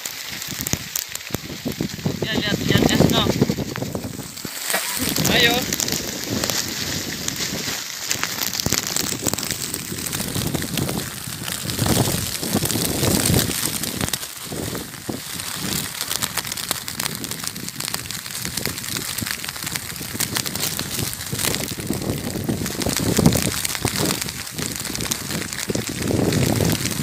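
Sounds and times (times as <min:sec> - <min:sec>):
hailstones falling on gravel: 0:00.0 - 0:27.0
wind noise: 0:00.0 - 0:27.0.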